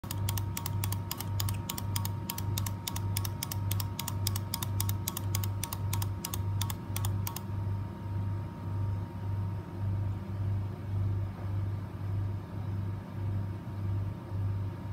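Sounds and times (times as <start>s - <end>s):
plastic toy bird clicking: 0.0s - 7.4s.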